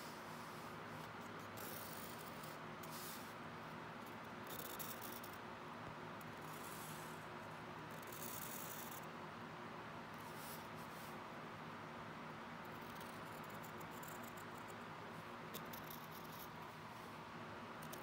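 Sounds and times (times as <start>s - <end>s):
pencil scratching on paper: 0.0s - 3.4s, 8.0s - 9.0s, 15.5s - 16.6s.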